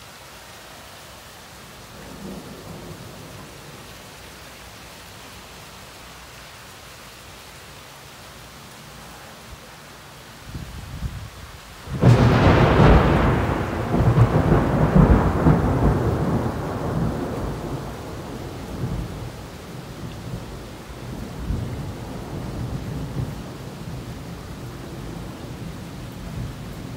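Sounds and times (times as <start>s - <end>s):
heavy rain: 0.0s - 26.9s
thunderclap with rolling rumble: 11.9s - 26.9s.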